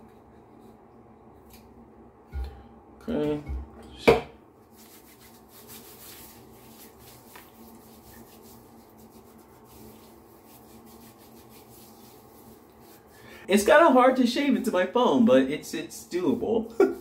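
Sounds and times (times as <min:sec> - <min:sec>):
wet rubbing of lather on stubble: 0:04.7 - 0:13.2.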